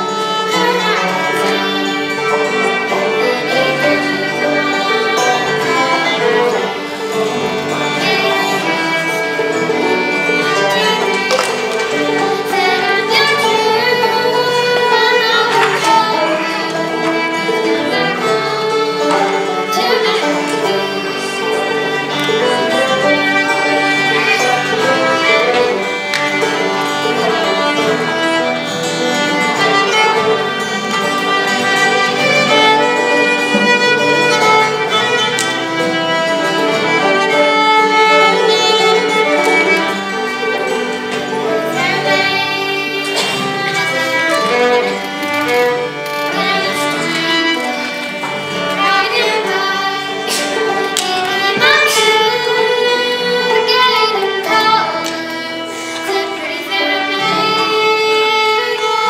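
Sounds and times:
fiddle melody: 0.0 - 59.0
strummed acoustic guitar: 0.0 - 59.0
girl singing: 0.2 - 6.5, 7.9 - 9.3, 12.0 - 22.2, 41.7 - 44.0, 46.2 - 47.6, 48.7 - 59.0.

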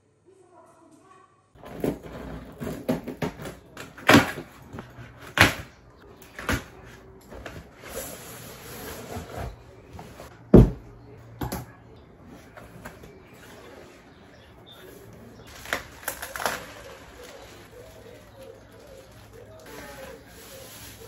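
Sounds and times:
knocks and thumps on cardboard: 10.5 - 10.8
packaging rustling: 15.4 - 21.0.

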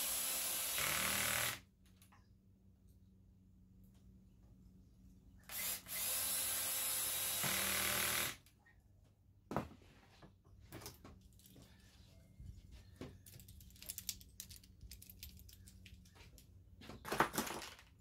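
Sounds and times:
cordless drill driving screw into wood: 0.0 - 1.6, 5.5 - 8.4.

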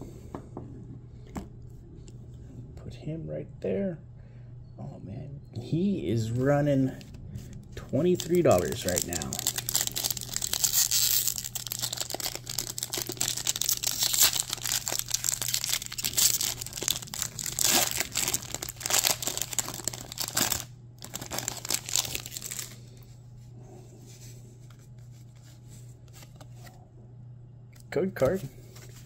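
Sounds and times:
cards shuffling: 6.9 - 22.7
foil wrapper crinkling and tearing: 7.8 - 22.8.

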